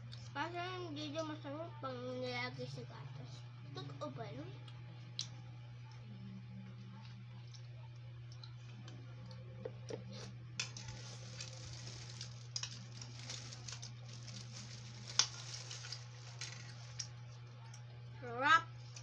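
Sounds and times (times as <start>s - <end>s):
steady low hum: 0.0s - 19.0s
cereal crunching: 10.6s - 17.3s.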